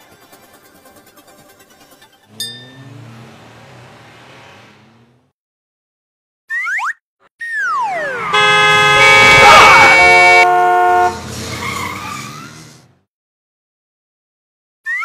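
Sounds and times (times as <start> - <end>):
cartoon car engine effect: 1.9 - 5.3, 7.4 - 13.0
short ding: 2.4 - 2.9.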